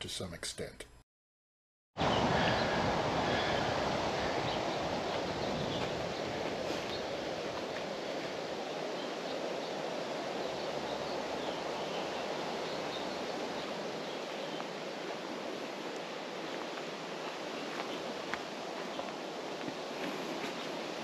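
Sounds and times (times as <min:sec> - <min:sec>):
wind through trees: 0:02.0 - 0:21.0.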